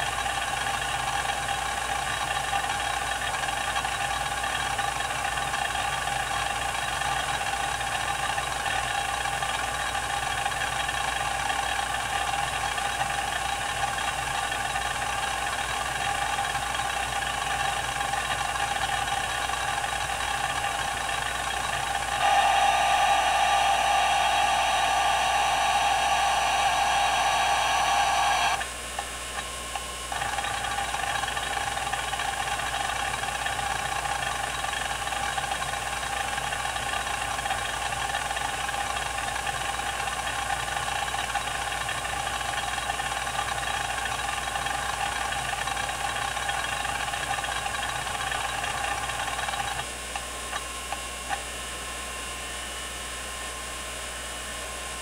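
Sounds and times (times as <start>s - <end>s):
hard drive spindle hum: 0.0s - 55.0s.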